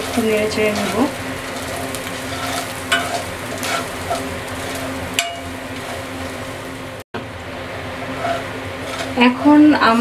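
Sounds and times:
metal spatula scraping pan: 0.0 - 6.2, 8.0 - 9.4
spices sizzling in oil: 0.0 - 10.0.

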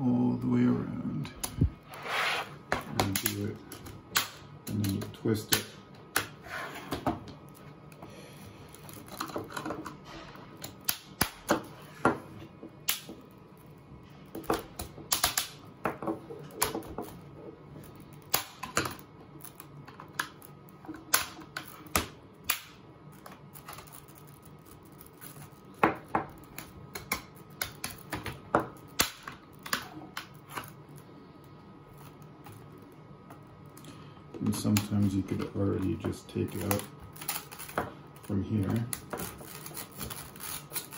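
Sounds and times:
hard plastic cracking and snapping: 10.6 - 11.7, 12.7 - 13.3, 14.3 - 17.2, 17.8 - 30.8, 33.7 - 40.9.

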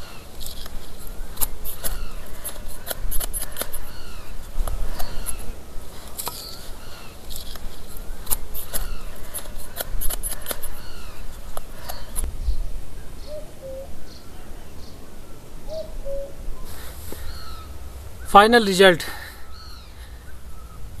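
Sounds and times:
birds calling: 0.0 - 21.0
knife whittling wood: 0.4 - 5.5, 7.2 - 12.2.

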